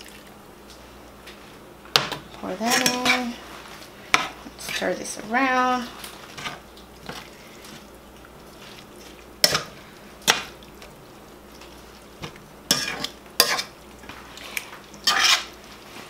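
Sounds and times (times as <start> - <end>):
metal spatula scraping skillet: 2.6 - 3.4, 12.7 - 13.7, 15.0 - 15.6.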